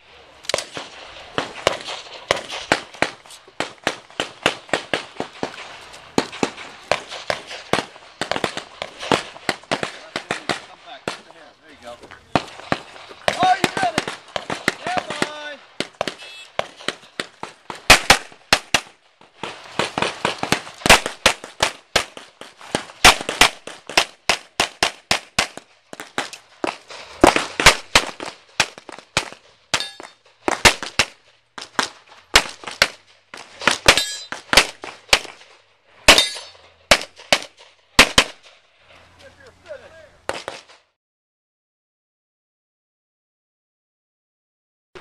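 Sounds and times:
handgun shots: 36.1 - 38.5.

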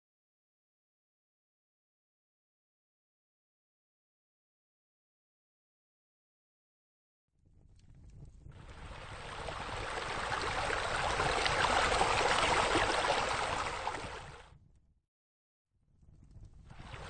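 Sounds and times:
pool bubbler jet splashing: 8.8 - 14.4.

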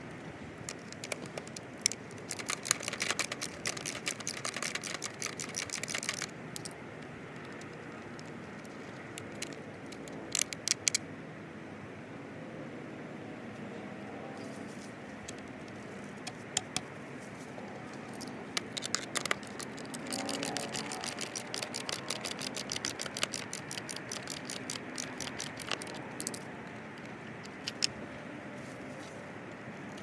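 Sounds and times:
background noise: 0.0 - 30.0
skate tool clicking on metal nuts: 0.6 - 6.7, 18.2 - 28.0.

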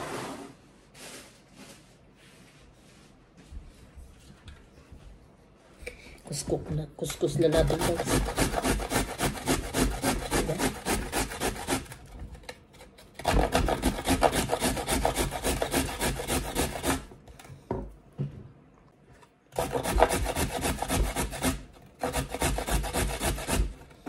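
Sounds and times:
garlic rasping on grater: 7.3 - 12.1, 13.2 - 17.1, 19.6 - 24.0.

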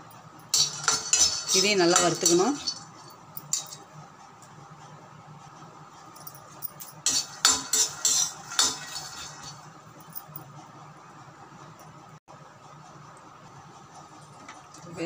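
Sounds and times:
metal spatula scraping steel pan: 0.5 - 3.7, 7.0 - 9.6.

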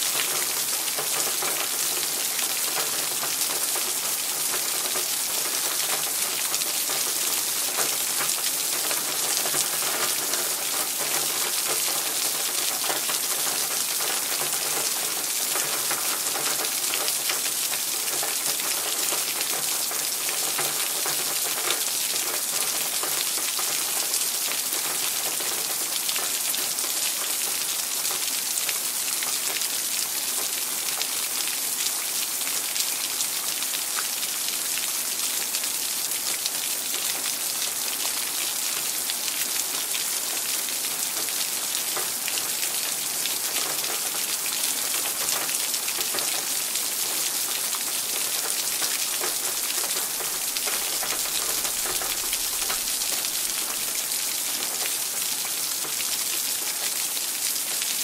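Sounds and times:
rain falling and dripping: 0.0 - 58.0.

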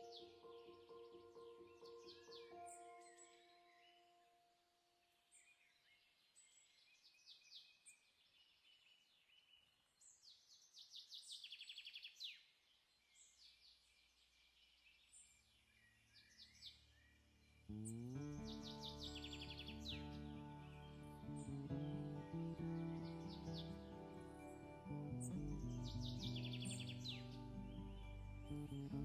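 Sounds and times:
background music sustained notes: 0.0 - 4.6, 17.4 - 29.0
faint birdsong chirps: 0.0 - 29.0.

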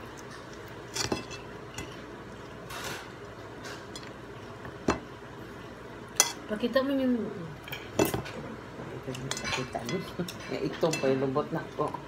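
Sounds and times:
cutlery clinking on a plate: 9.2 - 11.2.

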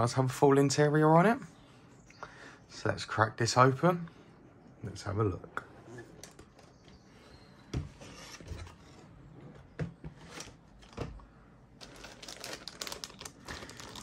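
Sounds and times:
plastic bags crinkling: 11.7 - 14.0.

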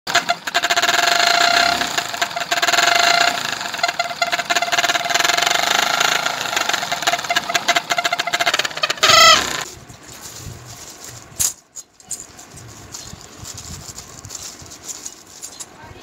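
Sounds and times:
motorcycle engine idling: 0.2 - 9.6
horn-like tone from exhaust: 1.2 - 1.9, 2.9 - 5.3.

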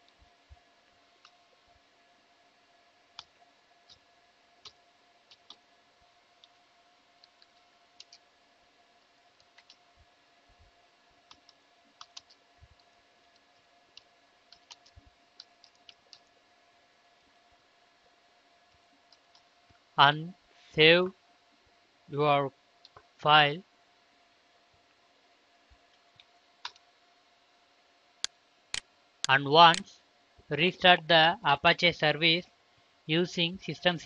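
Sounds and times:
faint steady hum: 0.0 - 34.0
keyboard keys clicking: 11.3 - 12.4, 14.5 - 16.2.

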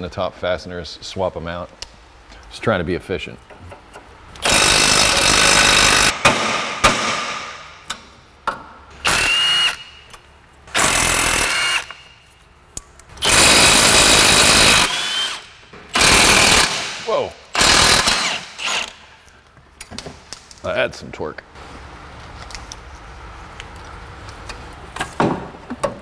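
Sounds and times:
impact wrench hammering: 4.4 - 8.6, 13.2 - 19.0.

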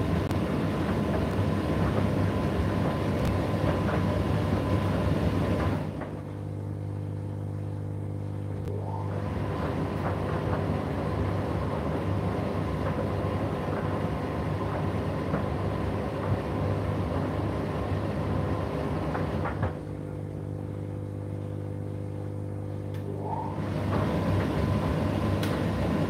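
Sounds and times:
dryer drum tumbling: 0.0 - 6.2
tumble dryer motor hum: 0.0 - 26.0.

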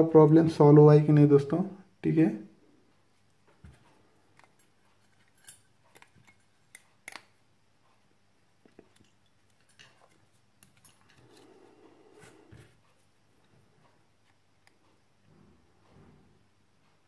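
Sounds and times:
faint clicks and taps: 12.3 - 15.3.

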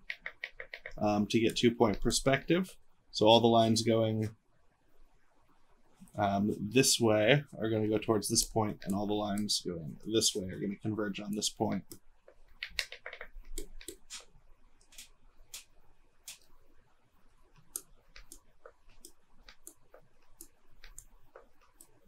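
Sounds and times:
faint computer clicks and taps: 0.0 - 2.3, 8.4 - 9.7, 10.5 - 16.6, 17.4 - 22.0.

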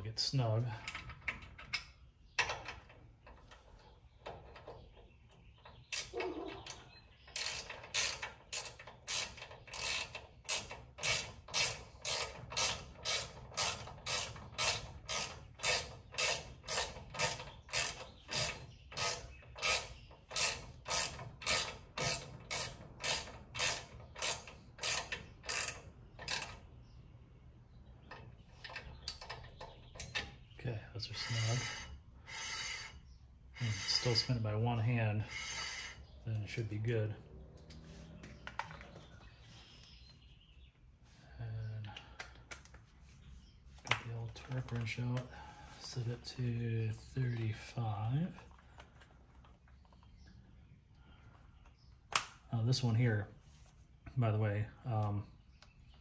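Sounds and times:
hand ratchet clicking: 7.3 - 26.6, 31.2 - 33.0, 33.6 - 34.2, 35.3 - 36.0.

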